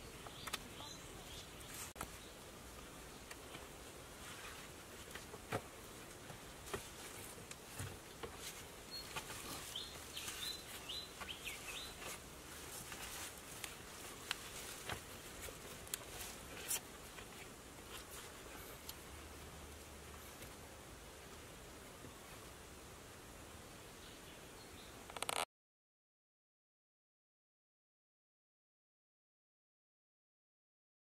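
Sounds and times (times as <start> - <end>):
bird chirping: 0.0 - 2.4, 8.8 - 12.1
faint outdoor ambience: 0.0 - 25.5.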